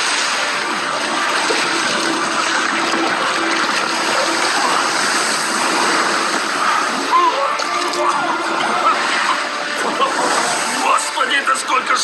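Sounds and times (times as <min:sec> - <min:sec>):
waves breaking and water splashing: 0:00.0 - 0:11.9.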